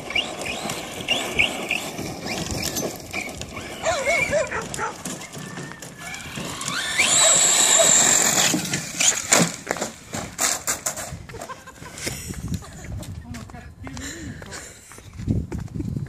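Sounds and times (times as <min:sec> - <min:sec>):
electric motor whine: 0:00.0 - 0:09.6.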